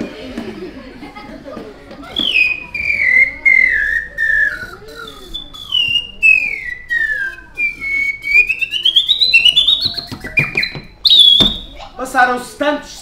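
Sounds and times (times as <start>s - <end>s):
slide whistle glide: 2.2s - 11.7s.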